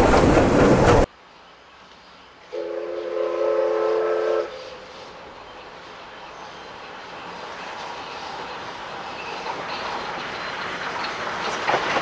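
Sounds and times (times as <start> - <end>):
train running sound: 0.0 - 12.0
steam locomotive whistle: 2.5 - 4.9.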